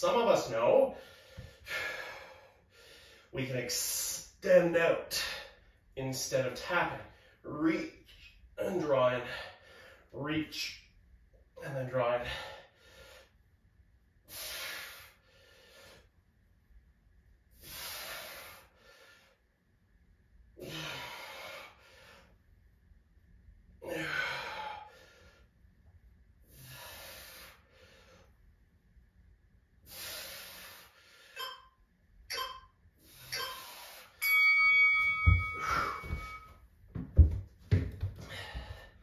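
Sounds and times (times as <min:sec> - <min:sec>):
man breathing hard: 0:00.9 - 0:03.4, 0:09.2 - 0:10.1, 0:12.2 - 0:13.4, 0:14.3 - 0:16.2, 0:17.5 - 0:19.4, 0:20.6 - 0:22.4, 0:23.8 - 0:25.6, 0:26.4 - 0:28.4, 0:29.8 - 0:31.4, 0:35.4 - 0:36.5, 0:38.2 - 0:39.0.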